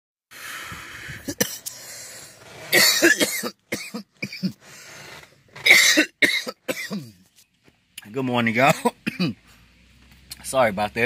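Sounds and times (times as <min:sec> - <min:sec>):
man coughing: 0:01.2 - 0:01.7, 0:02.7 - 0:04.6, 0:05.6 - 0:07.2, 0:08.7 - 0:09.4.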